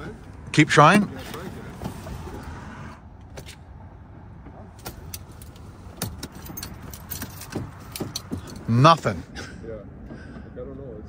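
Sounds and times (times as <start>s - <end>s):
keys rattling: 4.8s - 9.1s.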